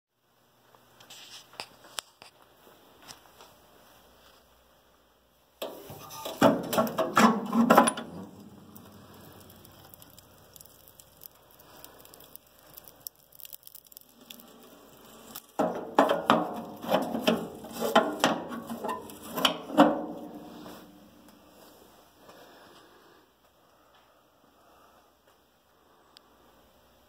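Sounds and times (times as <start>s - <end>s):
stove door latch clanking: 5.6s - 8.3s
metal and wood clattering: 5.6s - 10.7s, 15.3s - 21.0s
burning logs crackling: 5.6s - 23.8s.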